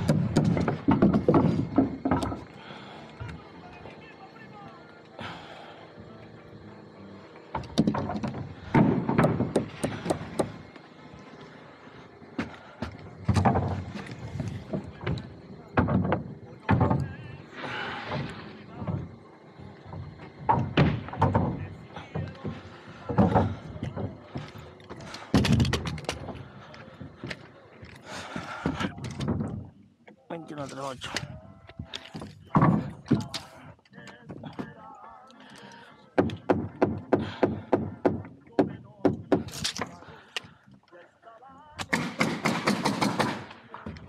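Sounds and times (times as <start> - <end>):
hammer knocking on lumber: 0.0 - 2.5, 7.5 - 10.7, 12.4 - 17.0, 19.9 - 24.7, 32.5 - 33.3, 36.2 - 39.6
heavy thud on wooden roof: 0.0 - 2.5, 7.6 - 10.6, 19.9 - 24.5, 36.2 - 39.5.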